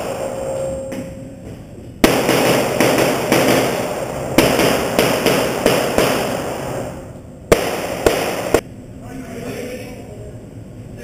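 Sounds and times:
rapid pistol fire with echo: 2.0s - 8.6s.

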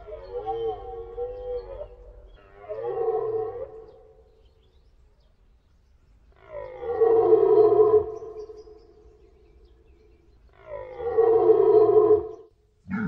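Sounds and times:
deer stag roaring: 10.6s - 13.0s.

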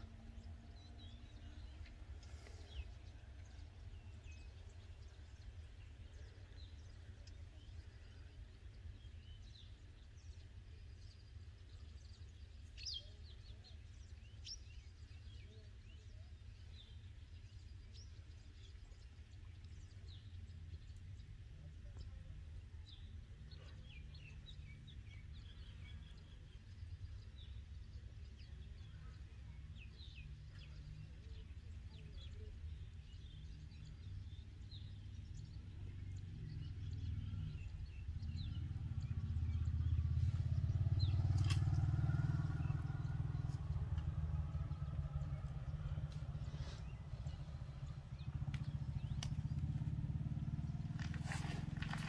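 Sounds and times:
small birds chirping: 0.0s - 52.0s
motor vehicle passing: 35.4s - 52.0s.

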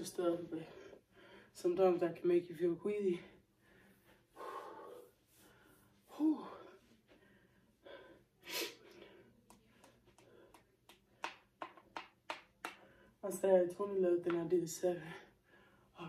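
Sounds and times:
woman breathing hard and gasping: 3.4s - 9.4s.

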